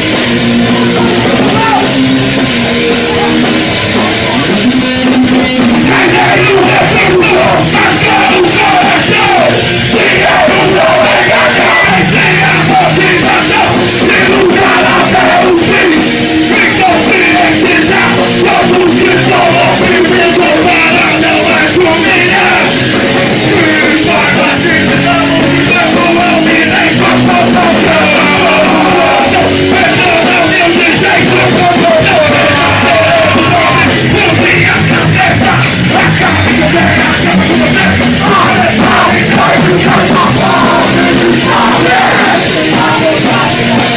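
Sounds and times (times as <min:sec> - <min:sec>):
punk rock band playing live: 0:00.0 - 0:43.9
person shouting vocals: 0:00.8 - 0:01.9.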